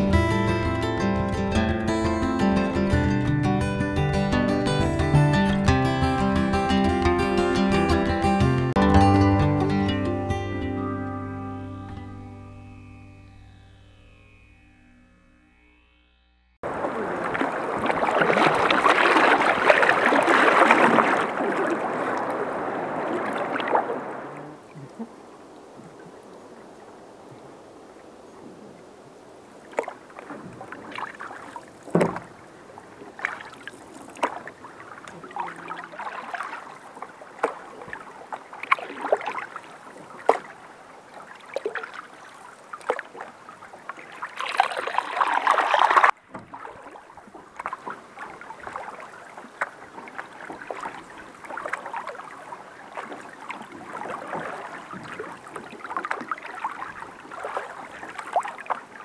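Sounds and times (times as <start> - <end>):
paddles dipping in water: 16.6 - 59.0
rush of water: 16.6 - 59.0
water lapping against canoe hull: 16.6 - 59.0.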